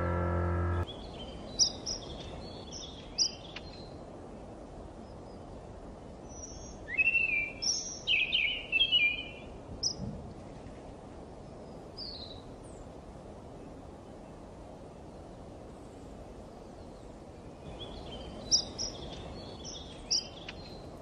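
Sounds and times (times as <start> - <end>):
low background rumble: 0.0 - 0.9
birds chirping: 0.0 - 3.8.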